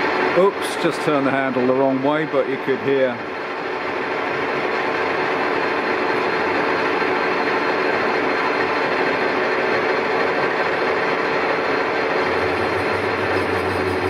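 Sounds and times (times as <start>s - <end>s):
lathe cutting tool chattering: 11.8s - 14.0s.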